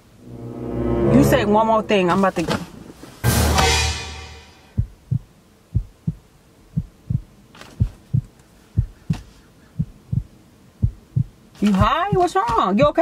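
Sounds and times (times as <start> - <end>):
heartbeat thumps: 4.7 - 12.4.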